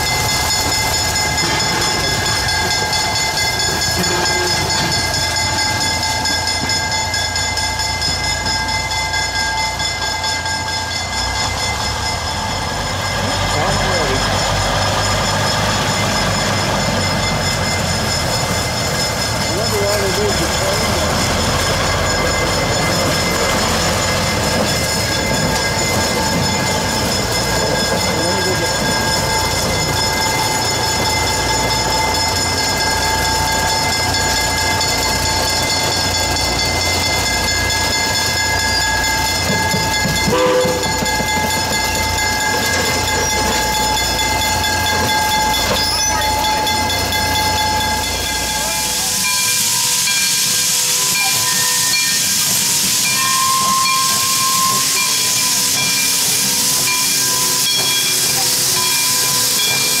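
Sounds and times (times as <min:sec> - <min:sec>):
diesel locomotive engine throb: 0:00.0 - 1:00.0
steam hissing from locomotive: 0:12.6 - 1:00.0.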